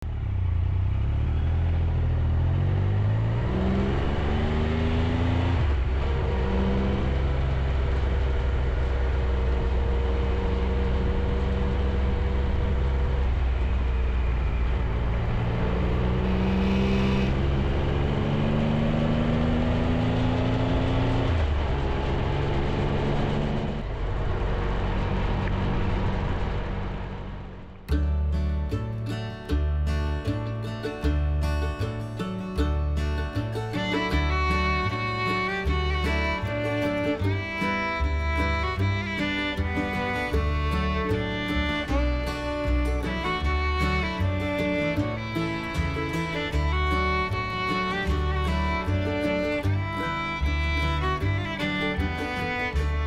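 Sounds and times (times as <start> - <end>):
motorcycle engine accelerating: 0.0 - 28.6
wind and road noise: 0.0 - 53.0.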